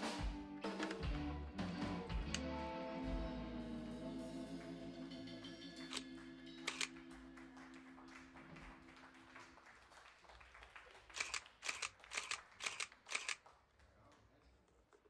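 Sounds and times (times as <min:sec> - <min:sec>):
camera shutter clacks: 0:05.9 - 0:07.0, 0:11.1 - 0:13.4
camera motor winding: 0:06.7 - 0:06.9, 0:11.2 - 0:13.4.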